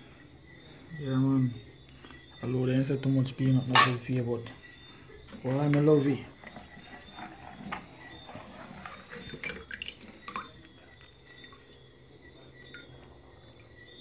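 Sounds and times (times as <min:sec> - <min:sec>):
water splashing and dripping: 0:08.6 - 0:11.8.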